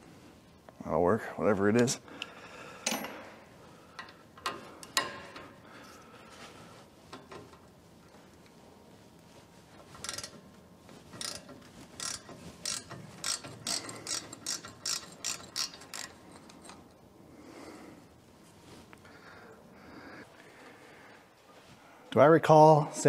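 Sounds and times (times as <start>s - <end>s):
ratchet wrench clicking: 10.0s - 10.4s, 11.2s - 16.8s.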